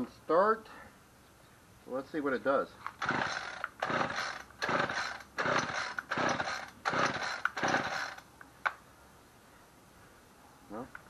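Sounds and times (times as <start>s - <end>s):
recoil starter rope rasping: 3.0s - 8.2s.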